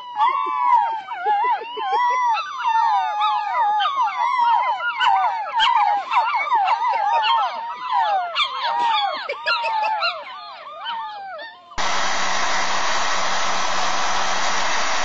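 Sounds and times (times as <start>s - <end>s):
puppies whining and yelping: 0.0s - 11.8s.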